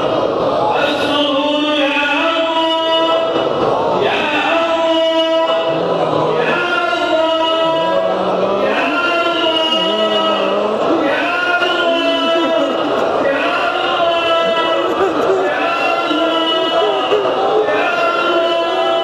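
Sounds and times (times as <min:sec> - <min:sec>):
lower voice chanting: 0:00.0 - 0:19.0
men chanting: 0:00.0 - 0:19.0.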